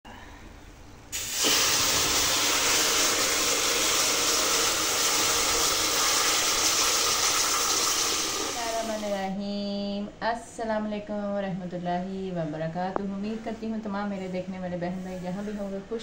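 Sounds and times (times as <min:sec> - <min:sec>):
water pouring into pot: 0:01.2 - 0:09.2.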